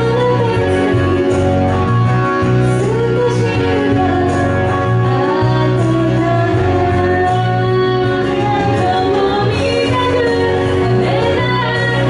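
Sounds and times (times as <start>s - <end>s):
woman singing into a microphone: 0.0s - 12.0s.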